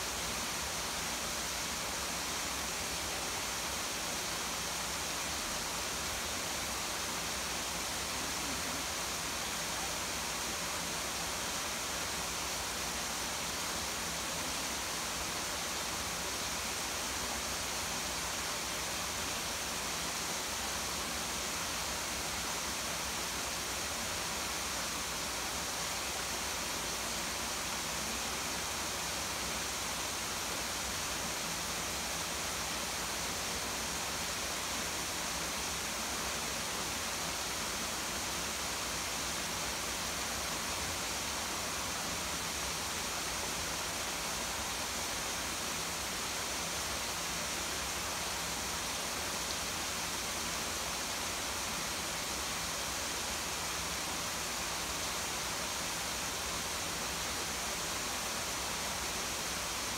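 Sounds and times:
small waterfall rushing: 0:00.0 - 0:59.9.

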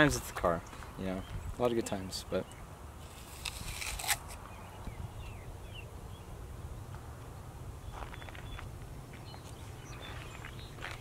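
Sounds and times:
wind on microphone: 0:01.2 - 0:01.6, 0:04.7 - 0:06.9.

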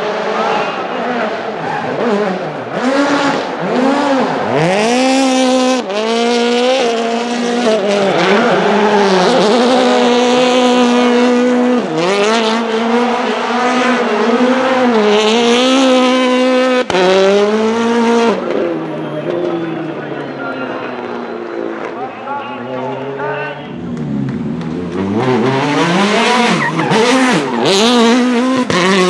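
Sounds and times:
car engine at high revs: 0:00.0 - 0:29.0
tyres squealing: 0:25.5 - 0:29.0.

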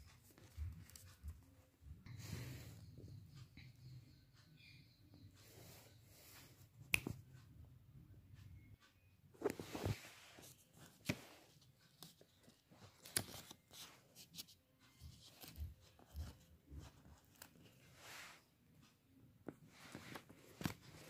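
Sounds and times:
paper rustling and crinkling: 0:09.4 - 0:17.7.

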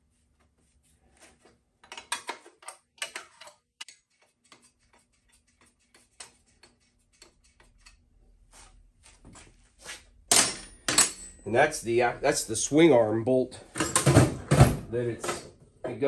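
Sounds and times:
metal tools clanking: 0:10.3 - 0:11.7, 0:13.6 - 0:15.5.

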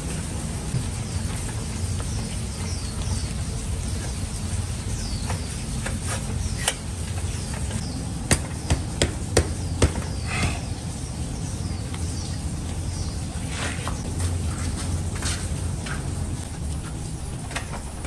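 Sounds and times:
metallic knocks on bicycle: 0:08.3 - 0:10.2.

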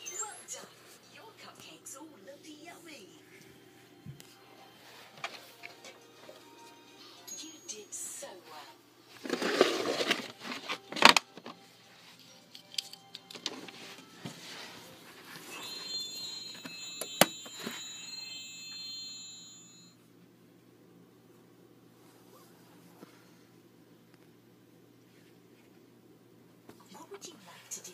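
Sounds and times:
plastic toy pieces rustling: 0:09.2 - 0:11.5.

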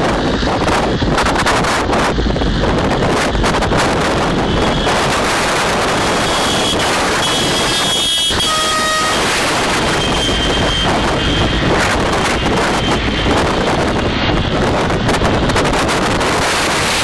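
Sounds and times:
car road noise: 0:00.0 - 0:17.0
wind rush on microphone: 0:00.0 - 0:17.0
car horns tooting: 0:06.1 - 0:11.0.

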